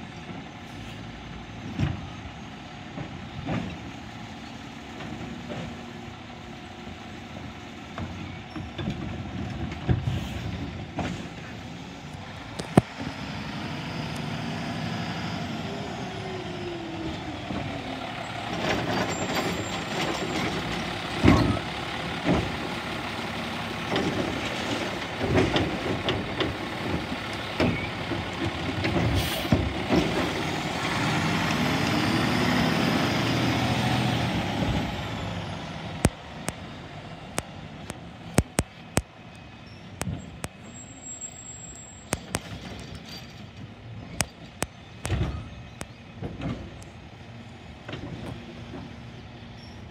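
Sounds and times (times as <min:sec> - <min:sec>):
diesel truck engine revving: 0:09.2 - 0:39.2.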